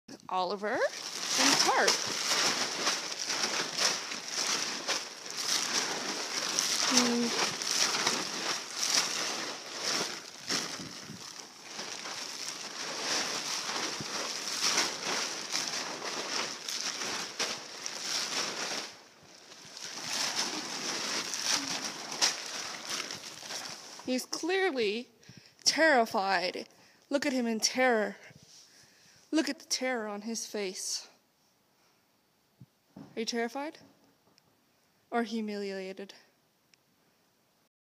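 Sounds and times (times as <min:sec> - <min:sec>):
irregular crunching and crackling: 0:00.1 - 0:24.6.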